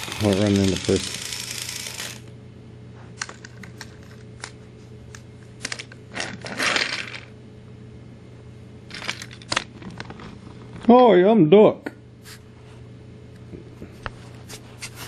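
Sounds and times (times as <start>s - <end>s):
toy engine scraping along track: 0.0s - 2.3s
toy train motor whirring: 0.0s - 2.3s.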